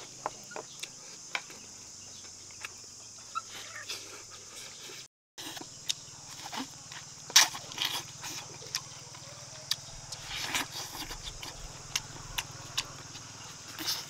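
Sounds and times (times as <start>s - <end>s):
wet chewing and smacking: 0.1s - 1.6s, 5.4s - 14.0s
steady low hum: 5.4s - 14.0s.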